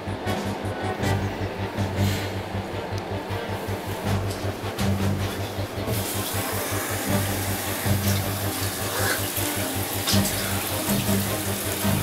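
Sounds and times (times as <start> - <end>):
background music with beat: 0.0 - 12.0
tap water running into sink: 5.9 - 12.0
water splashing: 5.9 - 12.0.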